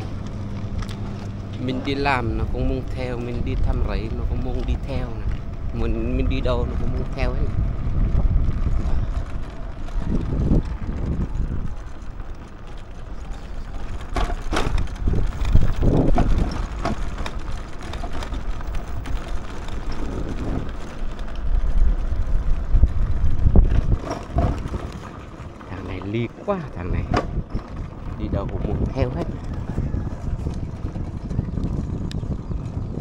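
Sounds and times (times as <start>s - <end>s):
small motorbike riding: 0.0s - 33.0s
wind rumble on microphone: 0.0s - 33.0s.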